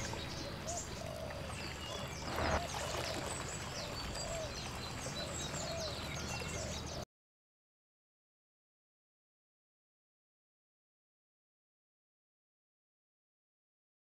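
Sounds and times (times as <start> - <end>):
rushing water-like noise: 0.0 - 7.0
small birds chirping: 0.0 - 7.0.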